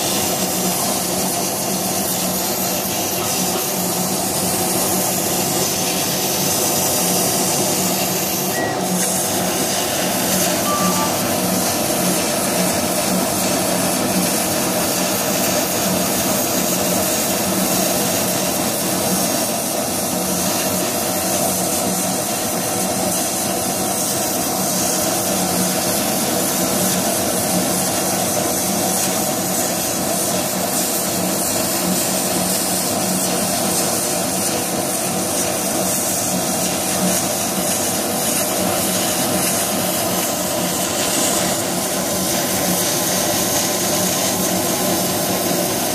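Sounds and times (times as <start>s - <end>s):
laser cutter rushing noise: 0.0s - 20.9s.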